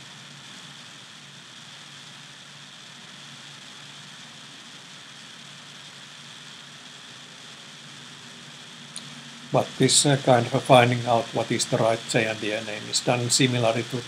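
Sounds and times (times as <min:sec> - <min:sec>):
steady microphone hiss: 0:00.0 - 0:14.0
faint low hum: 0:07.4 - 0:14.0.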